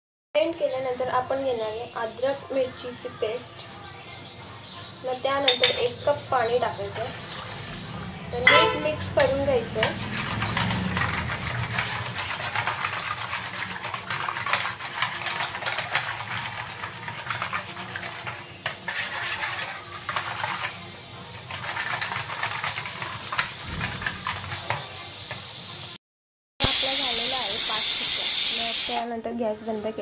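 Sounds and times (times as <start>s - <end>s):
wire whisk rattling in steel pot: 8.6s - 24.8s.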